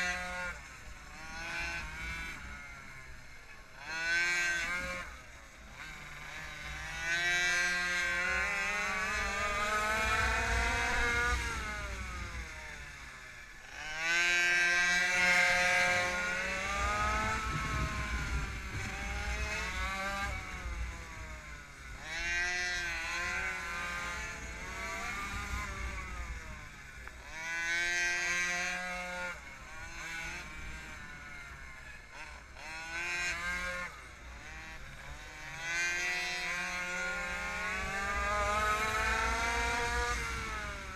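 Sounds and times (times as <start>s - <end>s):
two-stroke engine revving: 0.0s - 40.9s
wind rumble on microphone: 7.4s - 13.0s, 14.8s - 26.7s, 36.0s - 40.9s.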